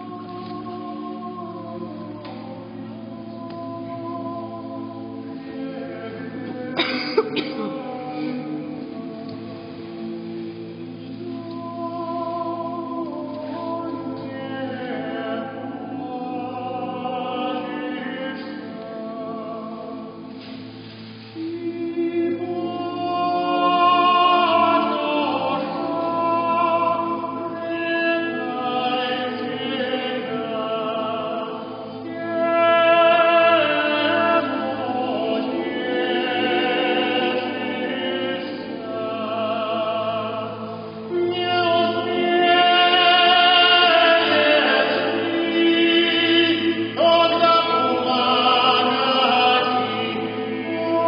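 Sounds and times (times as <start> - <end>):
male choir chanting unaccompanied: 10.8 - 20.3, 21.4 - 51.0.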